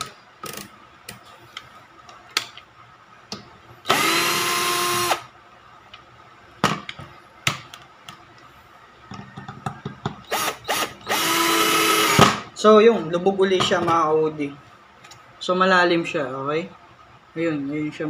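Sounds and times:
cordless drill motor whine: 0:03.9 - 0:05.3, 0:10.2 - 0:12.2.

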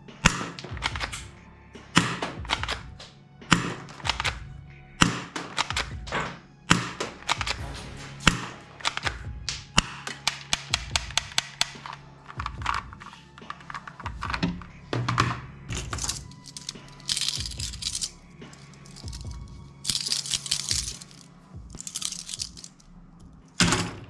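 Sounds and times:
background music: 0:00.0 - 0:24.0
toy pistol clicks: 0:06.7 - 0:07.6, 0:09.8 - 0:12.0
toy handcuffs rattling: 0:15.7 - 0:23.6.

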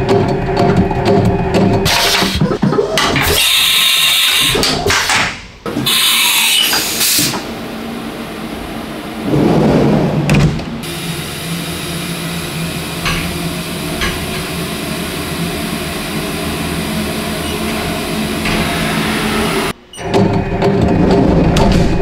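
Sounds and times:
milling machine humming: 0:10.3 - 0:21.6.

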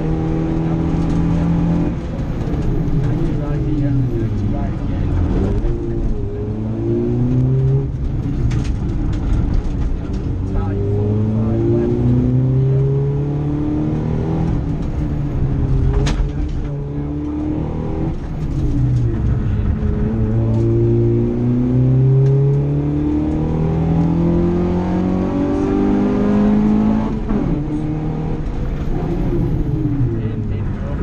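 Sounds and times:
car engine revving: 0:00.0 - 0:31.0.

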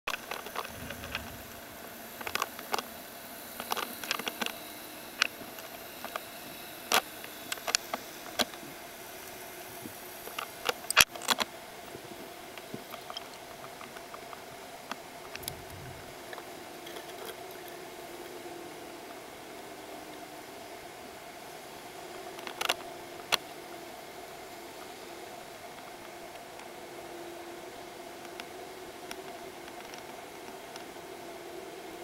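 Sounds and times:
sharp underwater clicks and knocks: 0:00.1 - 0:02.9
faint steady hum: 0:00.1 - 0:32.0.

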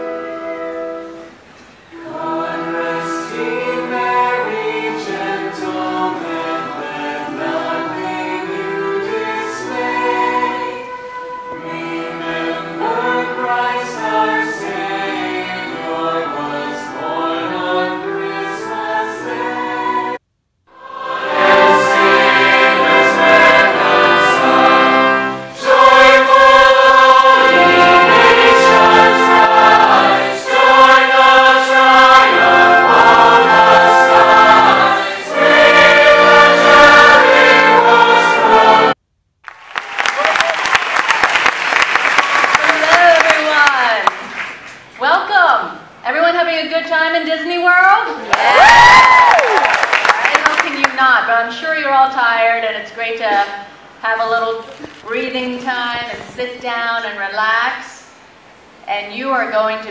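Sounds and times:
choir and orchestra performing: 0:00.0 - 0:20.2, 0:20.8 - 0:39.0.

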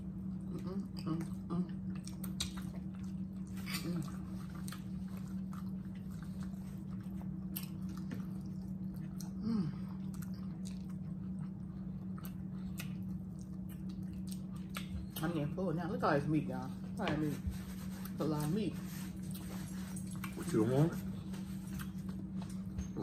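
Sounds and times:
steady low hum: 0:00.0 - 0:23.0
chewing mouth sounds: 0:00.4 - 0:15.4, 0:19.2 - 0:20.6.

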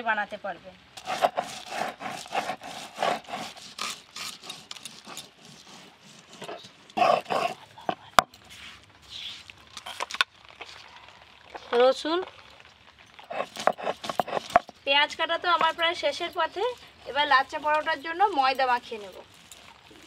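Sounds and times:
onions sliced on a blade: 0:01.0 - 0:07.6
stone roller grinding on stone slab: 0:01.0 - 0:08.7, 0:13.2 - 0:20.0.

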